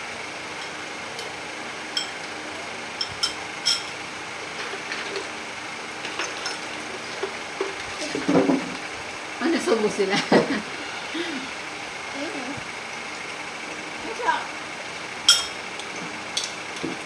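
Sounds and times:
metal spoons clinking on bowls: 2.0 - 2.2, 3.0 - 3.9, 15.3 - 15.6.

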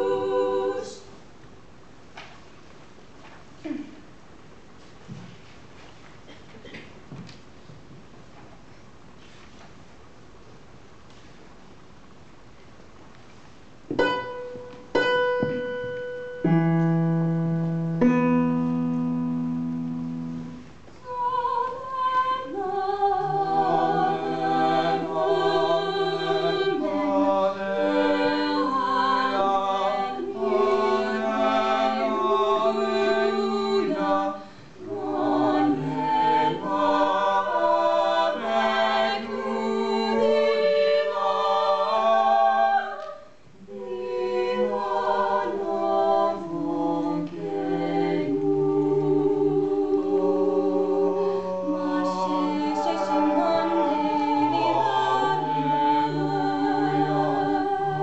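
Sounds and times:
vocal quartet singing unaccompanied: 0.0 - 1.2, 19.2 - 58.0
single piano notes: 13.9 - 20.8.

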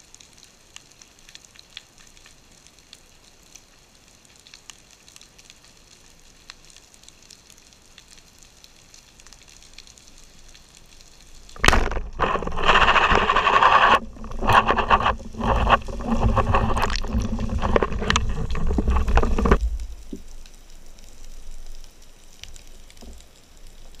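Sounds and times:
faint underwater crackling: 0.1 - 24.0
speargun firing underwater: 11.6 - 16.1
churning rushing water: 11.6 - 20.0.

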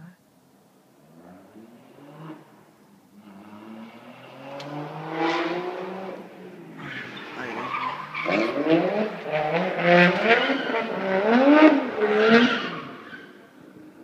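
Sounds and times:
car engine revving: 1.0 - 14.0
tyre squeal: 6.8 - 8.8.

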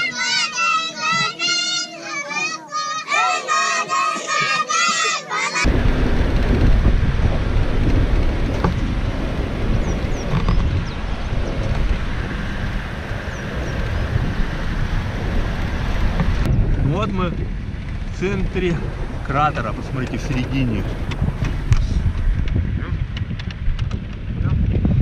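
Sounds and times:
children singing together: 0.0 - 5.7
wind buffeting microphone: 5.6 - 25.0.

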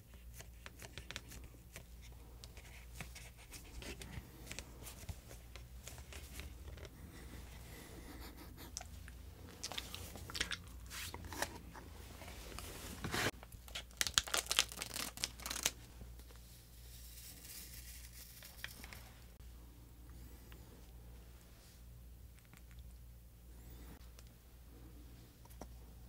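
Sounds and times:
plastic packaging crinkling: 12.4 - 15.9.

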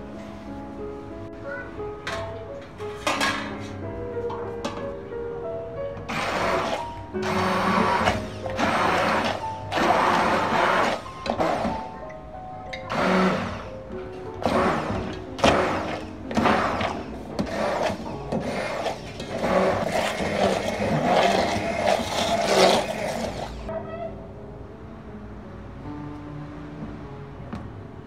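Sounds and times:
immersion blender whirring: 6.1 - 12.0, 12.8 - 13.7, 14.4 - 23.7.

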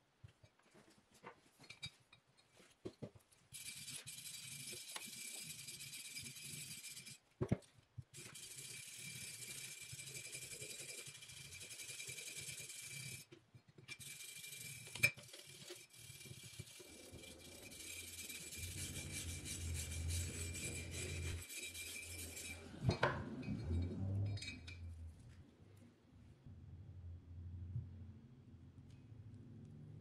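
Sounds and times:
abrasive rubbing on metal: 16.0 - 24.8.

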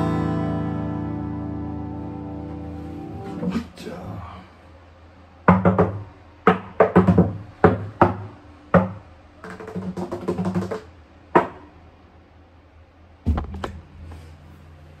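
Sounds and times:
acoustic string instrument strumming: 0.0 - 3.8
thumps on instrument: 13.3 - 13.8.

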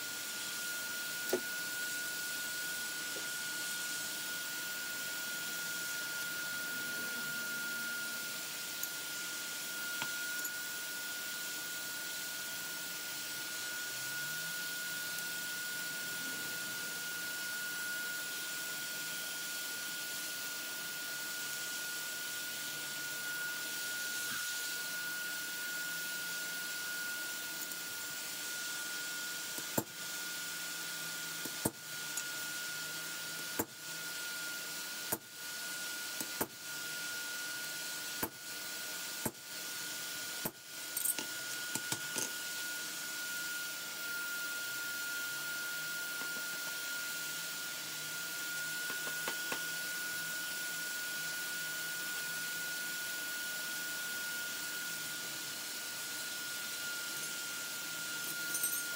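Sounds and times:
thin high whine: 0.0 - 18.6, 56.5 - 58.9.

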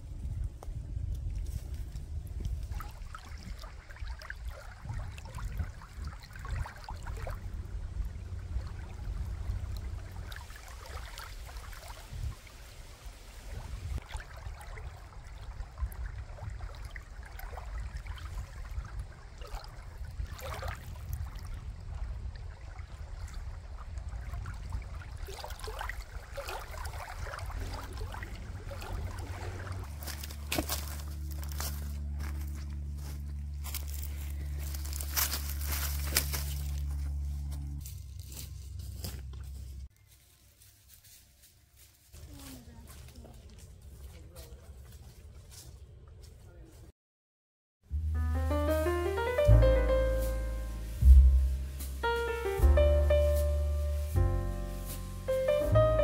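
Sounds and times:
wind rumble on microphone: 0.0 - 39.9, 48.8 - 54.5
small waves lapping on gravel: 1.7 - 36.8.

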